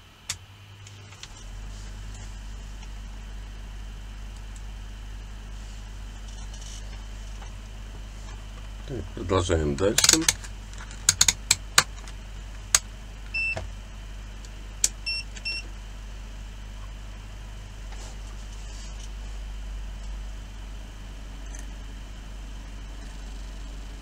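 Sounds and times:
steady low hum: 0.0 - 24.0
rotary switch clicking: 9.8 - 12.0.

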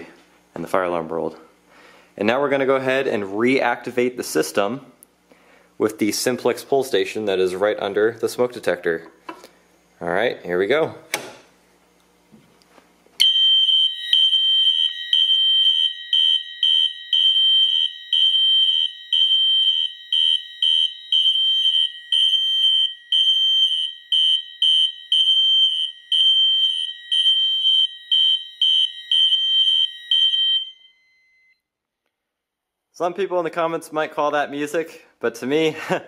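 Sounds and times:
fire alarms beeping: 13.2 - 31.6
steady alarm tone: 13.2 - 31.6.

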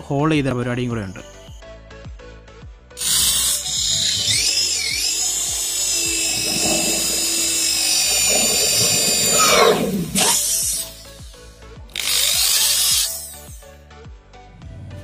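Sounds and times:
electric drill boring foam: 3.0 - 13.6.

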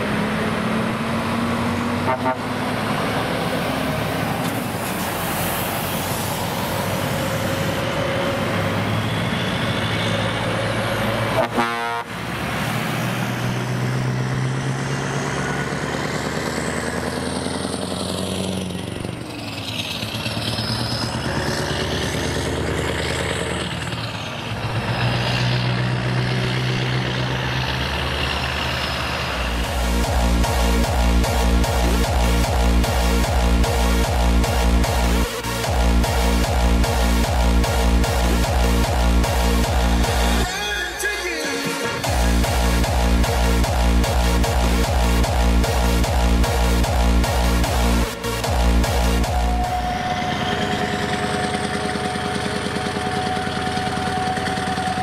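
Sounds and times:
heavy trucks driving past: 0.0 - 40.5, 41.6 - 55.0
truck horns: 0.9 - 15.7, 28.1 - 55.0.

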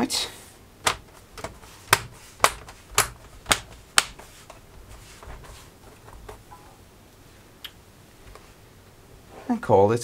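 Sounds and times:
small knocks: 0.8 - 6.8
cables rustling: 0.8 - 9.6.

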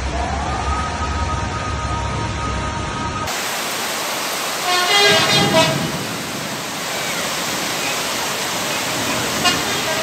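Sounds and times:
floodwater rushing: 0.0 - 10.0
car horn honking: 4.6 - 6.0, 9.4 - 10.0.

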